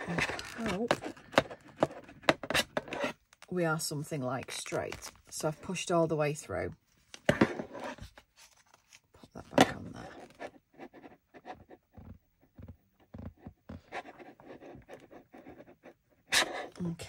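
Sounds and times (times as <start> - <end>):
awl scratching in paper: 0.0 - 3.2, 10.0 - 17.0.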